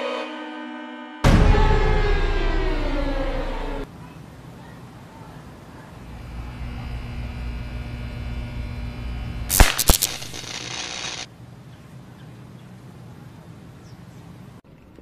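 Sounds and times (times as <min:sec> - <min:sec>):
electrical hum: 0:01.8 - 0:11.6
hissing crackle of electric arc: 0:06.0 - 0:11.3
sharp electrical cracks: 0:06.1 - 0:11.3.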